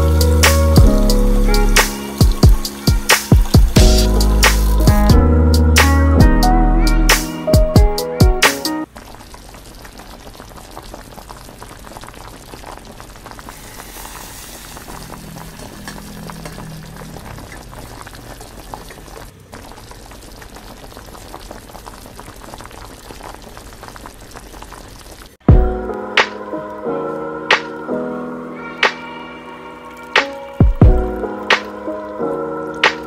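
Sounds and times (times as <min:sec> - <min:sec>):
water boiling in a pot: 0:00.0 - 0:05.0, 0:08.8 - 0:25.5, 0:29.8 - 0:33.0.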